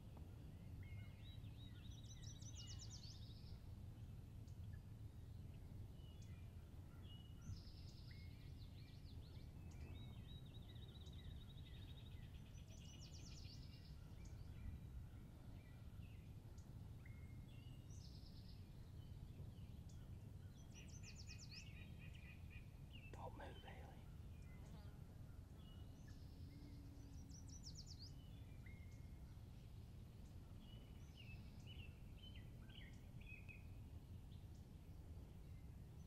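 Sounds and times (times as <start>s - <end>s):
songbirds singing: 0.0s - 36.0s.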